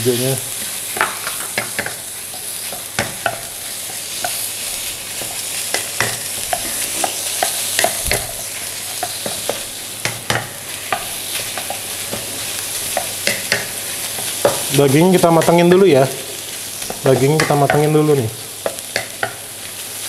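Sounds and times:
food sizzling in a wok: 0.0s - 20.0s
wooden spatula knocking on pan: 2.7s - 3.5s, 7.4s - 8.3s, 16.9s - 18.0s, 18.6s - 19.4s.

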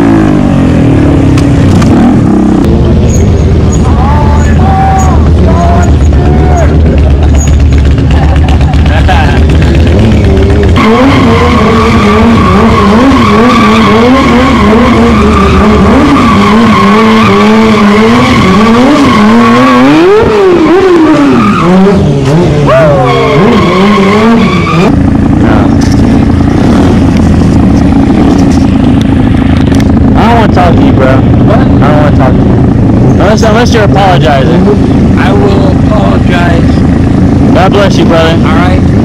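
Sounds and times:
motorcycle engine running evenly: 0.0s - 16.5s, 24.3s - 39.0s
motorcycle engine revving: 0.0s - 39.0s
high tyre squeal: 2.9s - 7.9s, 9.8s - 30.1s.

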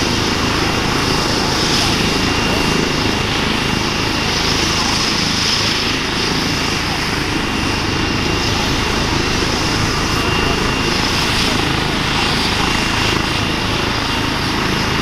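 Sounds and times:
helicopter rotor running: 0.0s - 15.0s
turbine whine: 0.0s - 15.0s.

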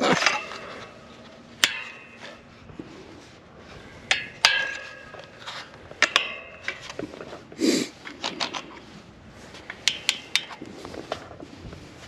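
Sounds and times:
metal clanking on fence rail: 0.0s - 2.5s, 3.9s - 7.4s, 9.6s - 11.3s.

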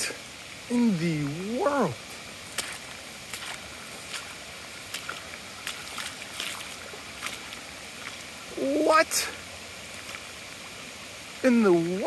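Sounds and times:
floodwater rushing: 0.0s - 12.0s
short sharp splashes: 2.5s - 8.2s.

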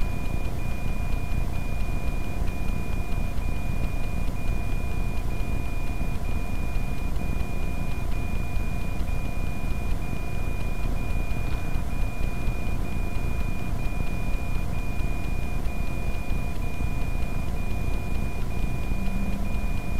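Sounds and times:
high electronic tone: 16.4s - 19.9s.

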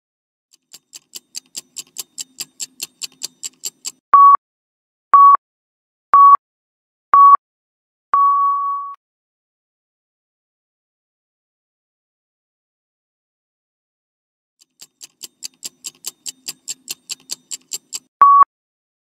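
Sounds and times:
quick timer ticking: 0.5s - 4.0s, 14.6s - 18.1s
short loud beeps: 4.2s - 4.4s, 5.2s - 5.4s, 6.2s - 6.4s, 7.2s - 7.4s, 8.2s - 9.0s, 18.2s - 18.5s.

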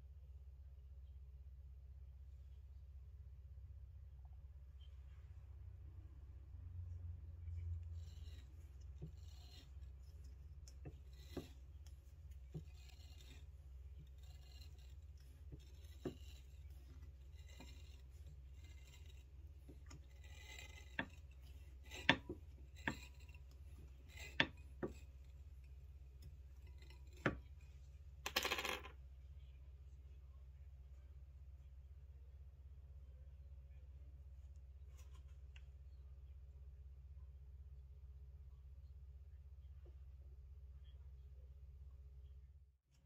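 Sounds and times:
short rasp: 7.8s - 25.3s.

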